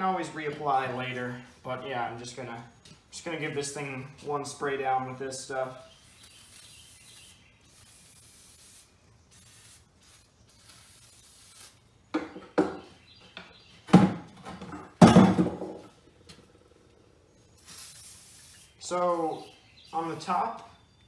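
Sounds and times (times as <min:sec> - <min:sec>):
aerosol can hissing: 0:06.1 - 0:11.8, 0:17.6 - 0:19.5
knocks on wooden workbench: 0:12.2 - 0:12.8, 0:13.9 - 0:15.8.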